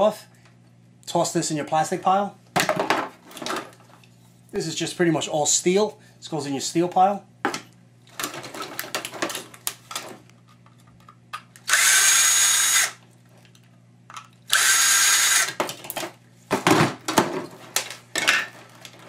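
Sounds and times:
cordless drill whining: 11.7 - 13.0, 14.5 - 15.6.

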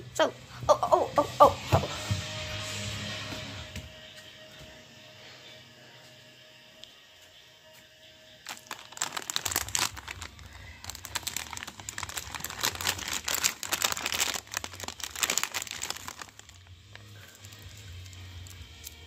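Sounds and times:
plastic candy bag crinkling: 8.4 - 19.0.

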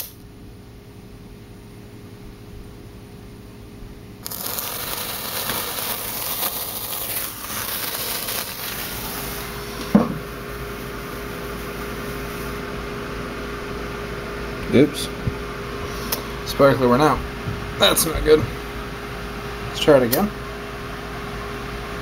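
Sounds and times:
sparkler fizzing and crackling: 4.2 - 12.6.

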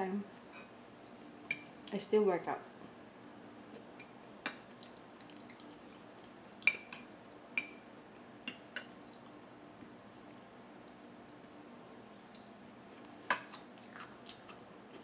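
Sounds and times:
soft liquid sounds: 4.7 - 6.8.

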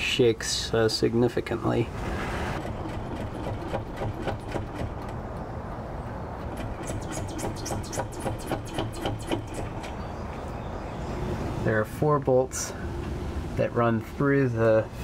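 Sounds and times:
loose bumper rattling: 2.6 - 10.0.

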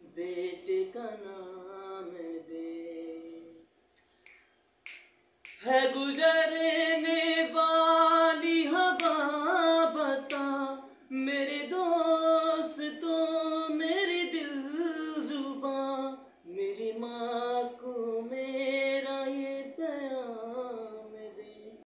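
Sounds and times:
man singing unaccompanied: 0.0 - 3.7, 5.5 - 21.9.

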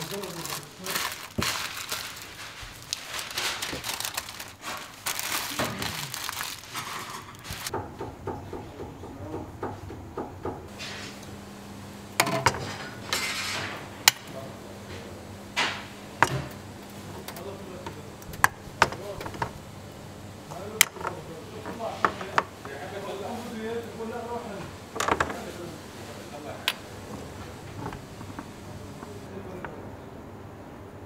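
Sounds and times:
paper and gloved hands rustling: 0.0 - 7.7
steady low hum: 7.7 - 31.0.

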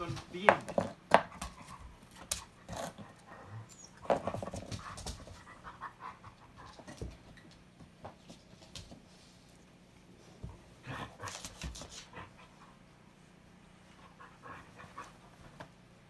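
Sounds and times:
dogs scuffling on a rug: 0.0 - 5.8, 6.6 - 12.4
dogs panting: 1.2 - 7.2.

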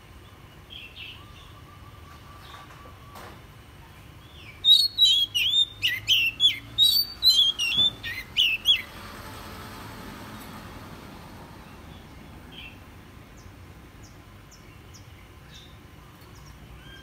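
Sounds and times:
bird singing whistled notes: 4.2 - 8.9.

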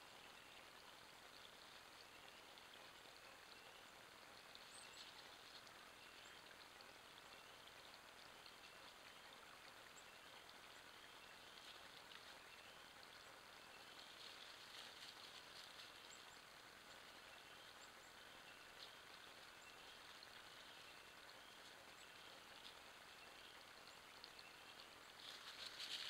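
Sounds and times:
faint steady hiss: 0.0 - 26.0
soft crackles: 11.4 - 17.0, 24.2 - 26.0.

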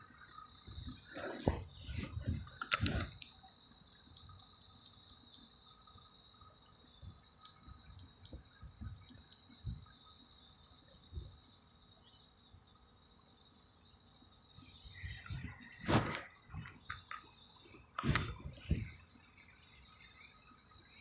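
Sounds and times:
insects trilling: 0.0 - 21.0
soft low thumps: 0.6 - 3.0
handling noise: 15.1 - 19.0.

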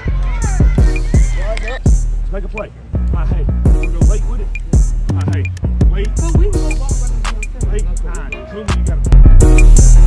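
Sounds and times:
rapping over a beat: 0.3 - 10.0
deep bass: 3.0 - 10.0
hard-hitting drum beat: 8.9 - 10.0.

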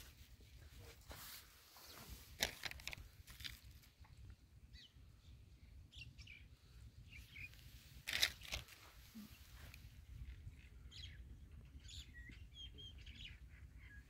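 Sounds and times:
footsteps on dry straw: 0.0 - 3.6
faint bird chirps: 4.7 - 14.0.

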